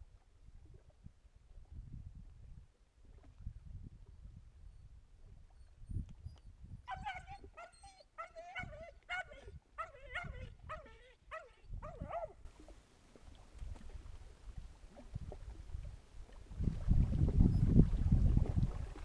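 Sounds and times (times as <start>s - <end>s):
faint low wind rumble: 0.0s - 19.0s
dog whining: 6.9s - 12.3s.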